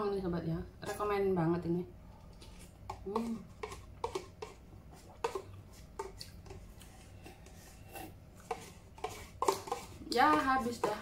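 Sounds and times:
soft eating sounds: 0:02.0 - 0:11.0
plastic spoon scraping paper cup: 0:02.4 - 0:04.6, 0:05.2 - 0:11.0.

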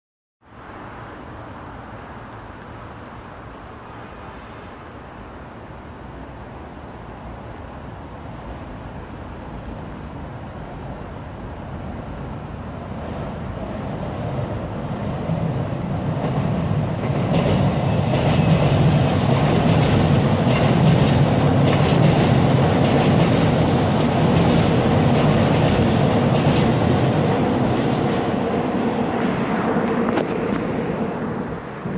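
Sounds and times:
electric train rumbling: 0:00.6 - 0:31.9
train wheel squeals: 0:17.4 - 0:26.7.

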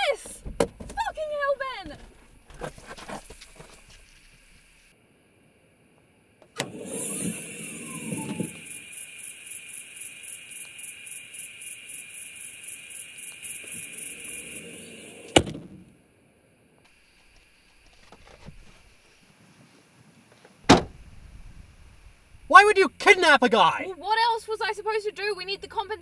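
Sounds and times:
high pulsing insect chorus: 0:00.0 - 0:19.3
car boot lid slamming shut: 0:15.3 - 0:15.8, 0:20.7 - 0:21.0.

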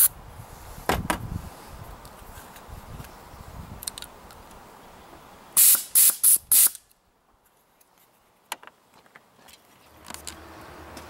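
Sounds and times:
compressed air hissing: 0:05.6 - 0:06.8.

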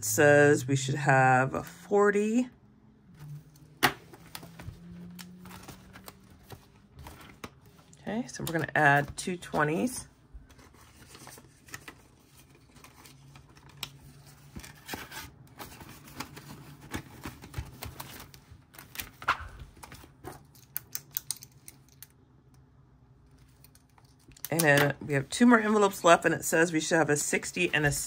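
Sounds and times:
paper money rustling: 0:04.0 - 0:20.7.

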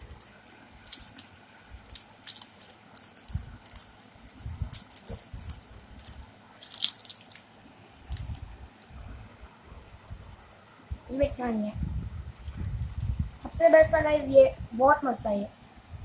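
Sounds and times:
plastic wrapper crinkling: 0:00.0 - 0:07.5, 0:08.1 - 0:08.4.

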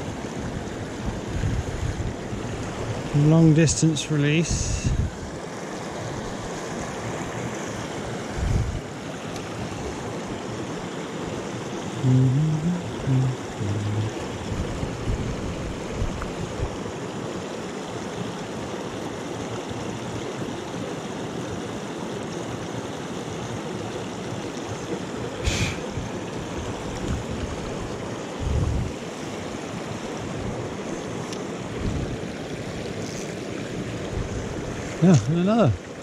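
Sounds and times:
stream splashing over rocks: 0:05.2 - 0:36.0.

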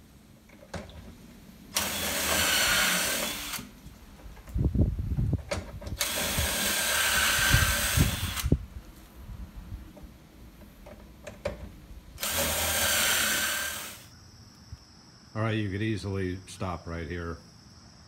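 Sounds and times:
cordless drill boring wood: 0:01.7 - 0:03.7, 0:06.0 - 0:08.6, 0:12.2 - 0:14.1.

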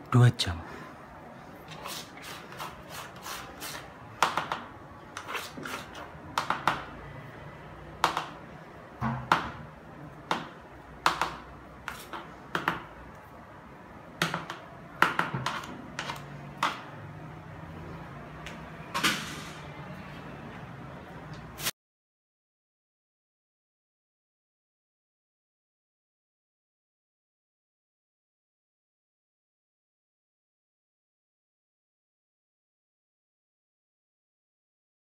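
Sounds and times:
plastic scraper tapping bucket rim: 0:06.3 - 0:06.8.

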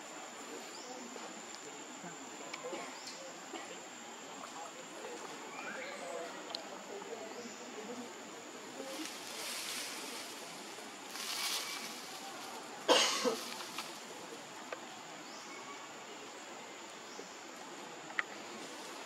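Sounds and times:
outdoor background hiss: 0:00.0 - 0:19.0
short cough-like sound: 0:12.9 - 0:13.4.

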